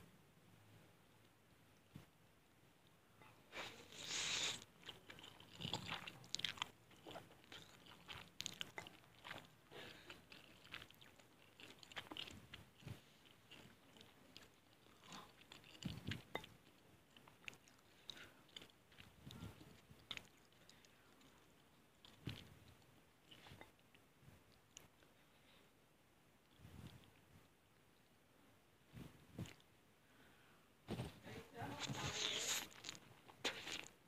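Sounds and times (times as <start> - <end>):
loud slurp of noodles: 3.6 - 4.7
wet chewing clicks and smacks: 4.6 - 25.1.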